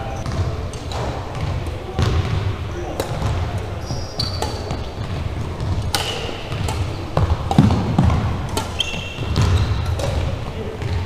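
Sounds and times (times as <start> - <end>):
gym hum: 0.0 - 11.0
racket hitting shuttlecock: 0.3 - 11.0
sneaker squeaks on hardwood: 3.2 - 11.0.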